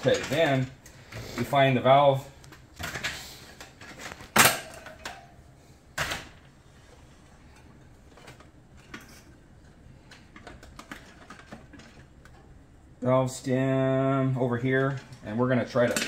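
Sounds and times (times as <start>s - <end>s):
metal tools clanking on wheel: 0.0s - 1.5s.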